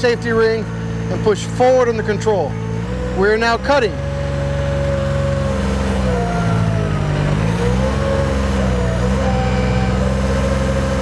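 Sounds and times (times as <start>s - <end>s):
boat engine and hydraulics running: 0.0s - 11.0s
cutter cutting weeds: 2.8s - 11.0s.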